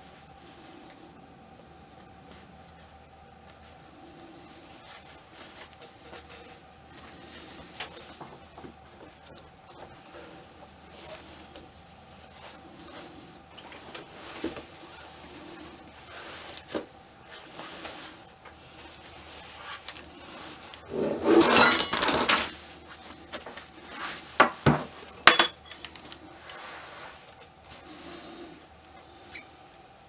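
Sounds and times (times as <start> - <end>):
rustling scrape: 12.2 - 24.4, 26.4 - 28.3.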